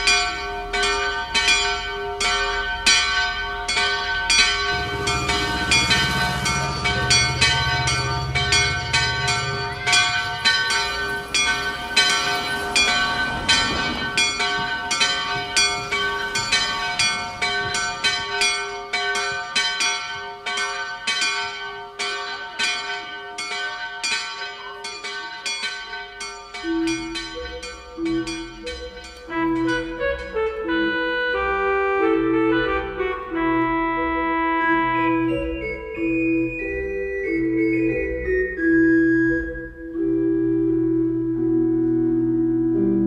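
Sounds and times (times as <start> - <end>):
church bells pealing: 0.0 - 38.7.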